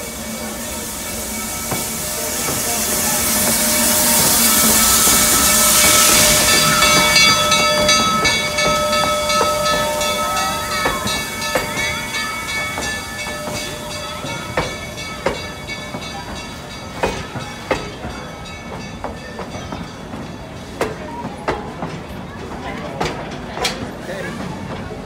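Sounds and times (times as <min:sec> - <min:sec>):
train wheels squealing: 0:00.0 - 0:20.1
steam hissing: 0:00.0 - 0:20.8.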